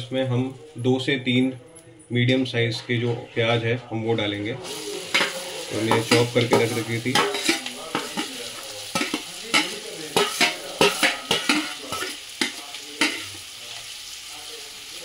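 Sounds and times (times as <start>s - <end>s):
metal ladle scraping a pan: 4.6s - 13.5s
onions sizzling in oil: 4.6s - 15.0s.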